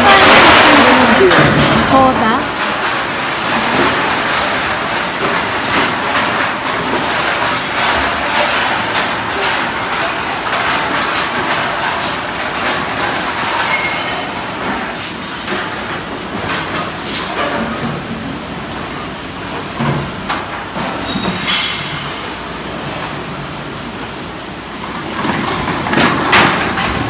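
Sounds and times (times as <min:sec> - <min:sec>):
bottles and cans clinking: 0:00.0 - 0:18.2, 0:19.8 - 0:22.9
conveyors and sorting machines clatter: 0:00.0 - 0:27.0.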